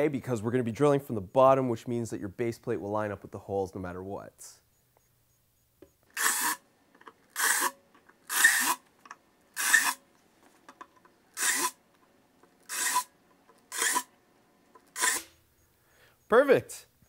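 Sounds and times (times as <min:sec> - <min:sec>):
drill bit cutting into wood: 0:06.1 - 0:06.6, 0:07.3 - 0:08.8, 0:09.6 - 0:10.0, 0:11.4 - 0:11.8, 0:12.6 - 0:13.1, 0:13.7 - 0:14.1, 0:14.8 - 0:15.4.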